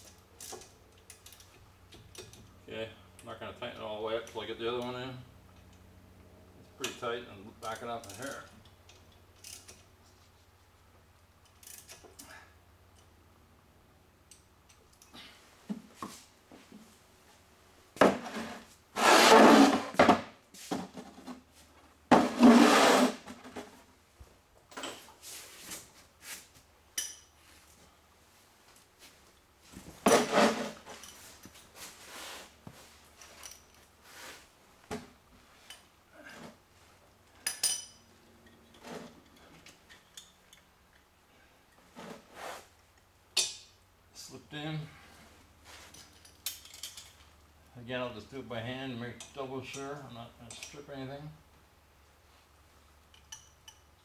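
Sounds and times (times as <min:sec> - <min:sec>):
metal tools clanking: 0:37.4 - 0:40.7.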